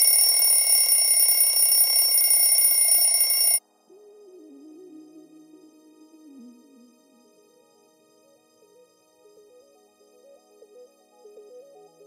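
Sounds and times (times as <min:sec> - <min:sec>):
alarm bell ringing: 0:00.0 - 0:03.6.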